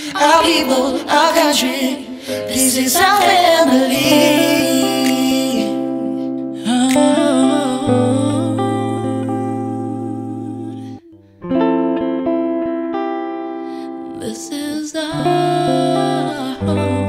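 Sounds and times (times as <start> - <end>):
person singing with vibrato: 0.0 - 11.3, 13.8 - 17.0
guitar playing: 0.0 - 17.0.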